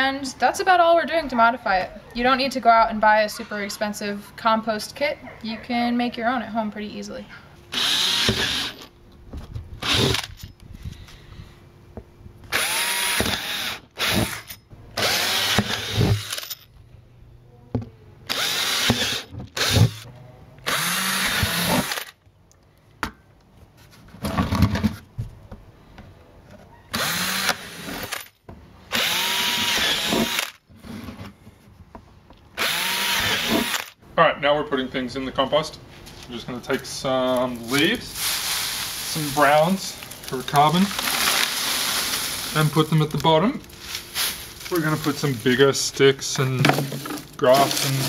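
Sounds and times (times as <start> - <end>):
cordless drill boring plastic: 7.7 - 8.8, 9.8 - 10.4, 12.5 - 16.6, 18.3 - 22.2, 26.9 - 28.3, 28.9 - 30.6, 32.6 - 34.0.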